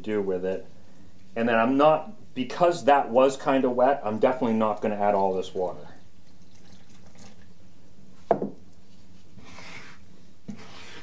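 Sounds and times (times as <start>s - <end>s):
spoon stirring dough in bowl: 8.8s - 11.0s
spoon scraping bowl: 9.4s - 11.0s.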